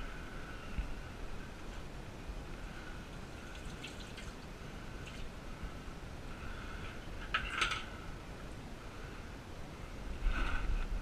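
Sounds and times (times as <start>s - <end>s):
water dripping: 3.4s - 5.3s.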